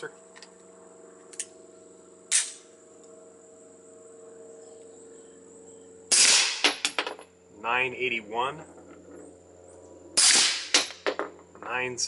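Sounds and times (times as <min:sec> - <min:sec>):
insects chirring: 0:00.0 - 0:12.0
suppressed pistol shot: 0:02.3 - 0:02.6, 0:06.1 - 0:06.9, 0:10.2 - 0:11.0.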